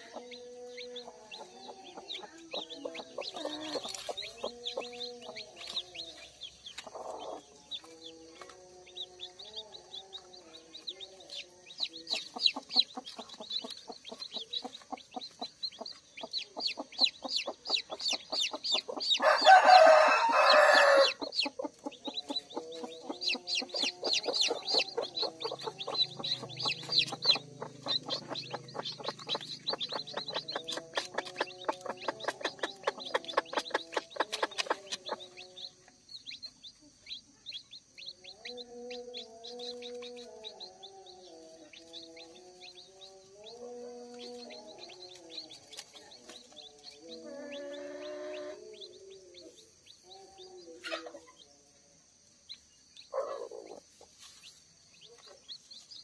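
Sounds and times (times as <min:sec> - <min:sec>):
chicks peeping: 0:00.0 - 0:56.0
rooster crowing: 0:19.1 - 0:21.5.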